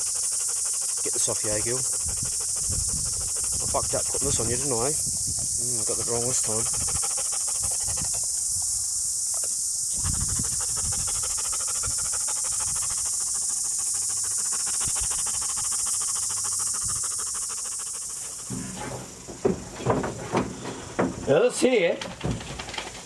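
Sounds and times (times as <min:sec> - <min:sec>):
insect chorus buzzing: 0:00.0 - 0:23.0
low thumps: 0:18.4 - 0:21.3.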